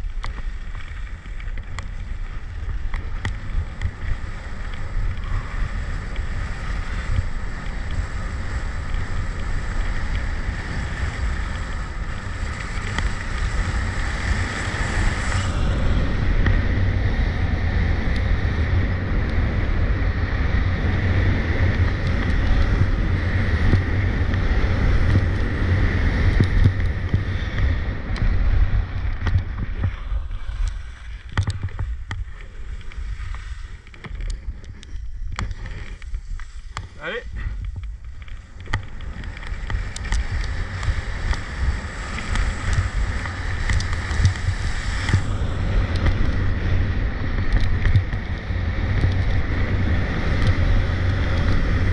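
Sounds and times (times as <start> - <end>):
skis scraping icy snow: 0.0 - 16.4, 21.6 - 47.9
wind buffeting microphone: 0.0 - 51.9.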